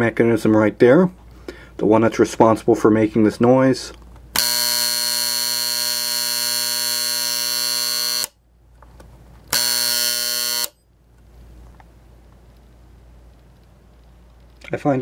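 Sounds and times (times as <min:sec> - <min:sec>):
alarm clock buzzer: 0:04.4 - 0:08.4, 0:09.5 - 0:10.8.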